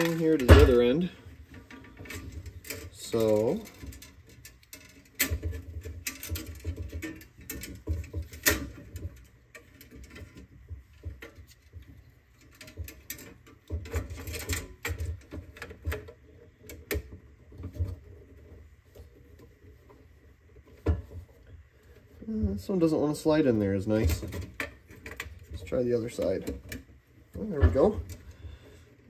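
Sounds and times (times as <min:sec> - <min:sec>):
metal housing thumping on wood: 0:00.0 - 0:04.2
plastic parts clicking and rattling: 0:00.0 - 0:22.3, 0:23.2 - 0:29.0.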